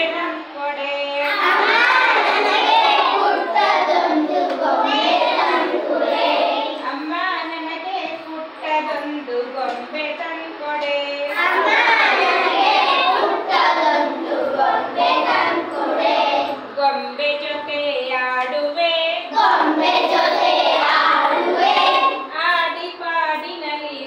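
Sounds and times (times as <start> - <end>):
children singing: 1.2 - 6.8, 11.3 - 16.7, 19.3 - 22.3.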